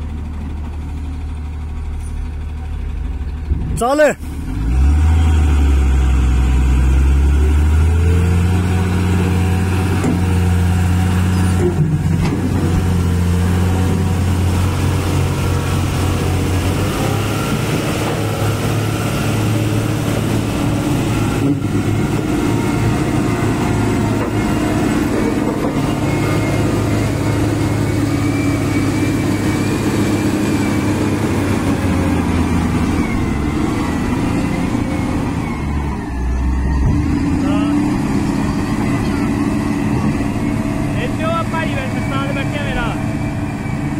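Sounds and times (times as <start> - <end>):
heavy diesel engines under load: 0.0 - 43.9.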